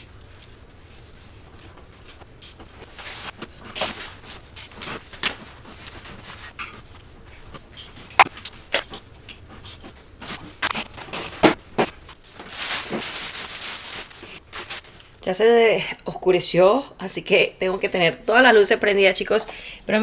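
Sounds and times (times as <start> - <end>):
plastic bag rustling: 10.1 - 15.4.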